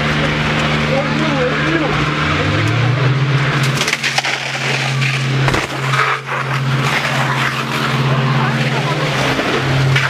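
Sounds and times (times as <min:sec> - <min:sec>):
vehicle engine droning: 0:00.0 - 0:10.0
sharp knocks and crackles: 0:03.5 - 0:08.2.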